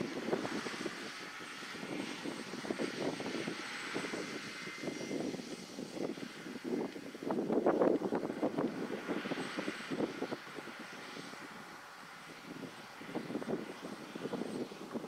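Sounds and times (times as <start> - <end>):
wind gusting on microphone: 0.0 - 15.0.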